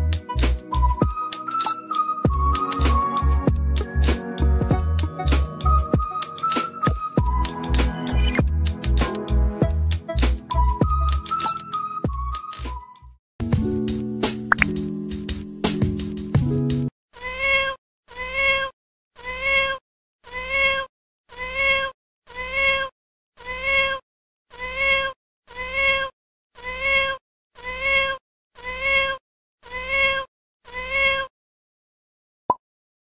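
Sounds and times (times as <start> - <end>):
music: 0.0 - 16.9
cat meowing: 17.2 - 31.3.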